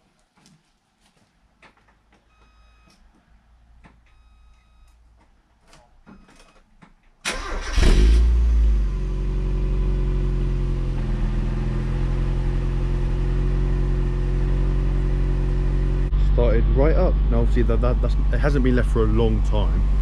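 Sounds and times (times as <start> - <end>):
car engine starting and idling: 7.2 - 20.0.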